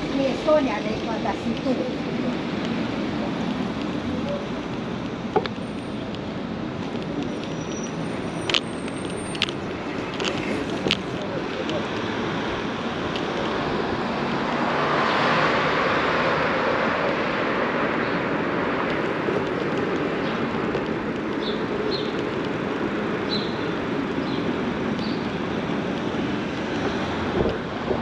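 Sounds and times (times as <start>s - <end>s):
wind on microphone: 16.5s - 28.0s
bicycle tyres rolling: 18.9s - 28.0s.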